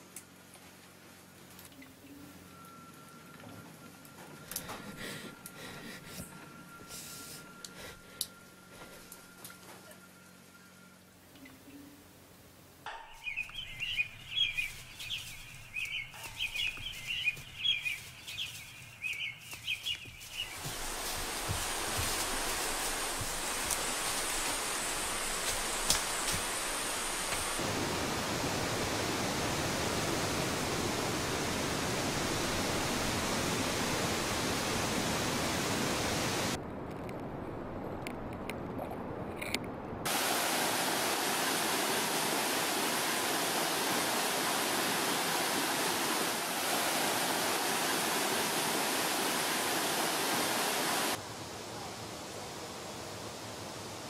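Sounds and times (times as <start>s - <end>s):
steady rushing noise: 20.2s - 54.0s.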